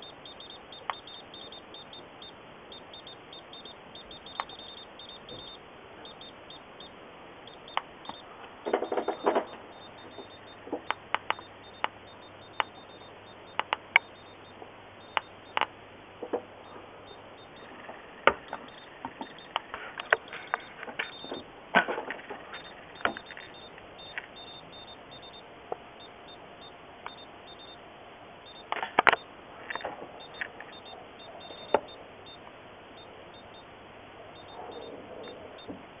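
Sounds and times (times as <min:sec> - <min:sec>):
geiger counter clicking: 0:00.0 - 0:27.8, 0:28.4 - 0:33.7, 0:34.3 - 0:35.8
short high beeps: 0:22.5 - 0:25.4.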